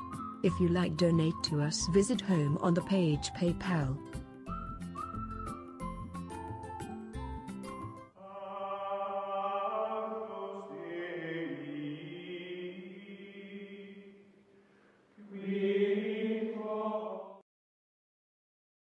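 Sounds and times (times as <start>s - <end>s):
choral chanting: 8.2s - 14.2s, 15.2s - 17.4s.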